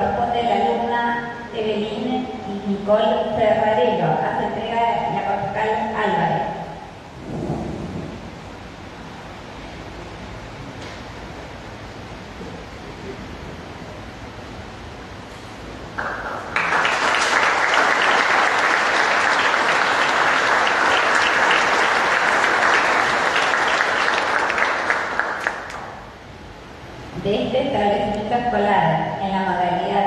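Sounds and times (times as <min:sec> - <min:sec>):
room hiss: 0:00.0 - 0:30.0
audience applauding: 0:16.0 - 0:26.0.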